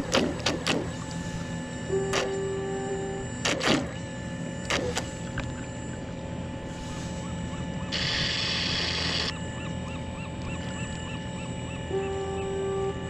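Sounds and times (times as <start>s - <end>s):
low rumbling water: 0.0s - 8.0s
faint steady hum: 0.0s - 13.0s.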